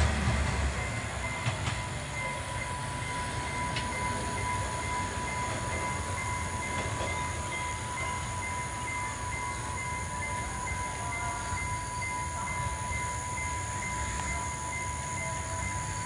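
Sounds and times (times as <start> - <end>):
diesel engine moving away: 0.0 - 6.0
steady high whine: 0.1 - 16.0.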